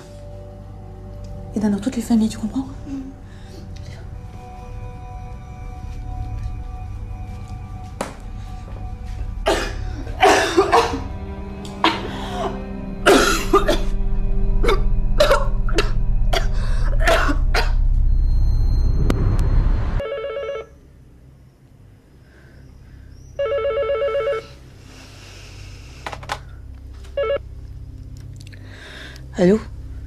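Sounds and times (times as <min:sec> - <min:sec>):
low droning music: 0:00.0 - 0:20.0, 0:20.7 - 0:30.0
telephone ringing: 0:20.0 - 0:20.8, 0:23.4 - 0:24.6, 0:27.2 - 0:27.4.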